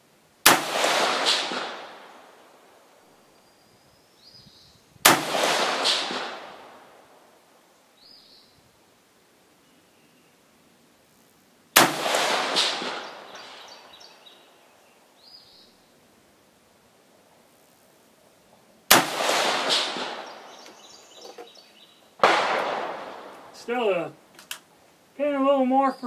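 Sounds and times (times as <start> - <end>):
rifle shots echoing: 0.4 - 2.5, 5.0 - 7.3, 11.8 - 14.1, 18.9 - 21.2, 22.2 - 24.0.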